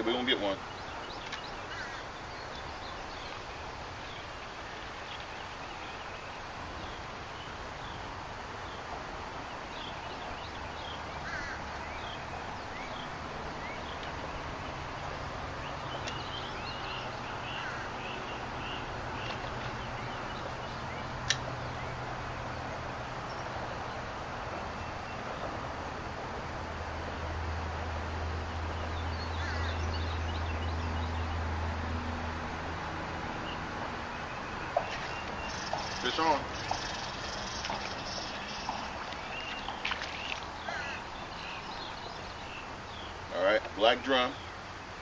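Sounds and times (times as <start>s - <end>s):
bird chirps: 33.4s - 43.2s.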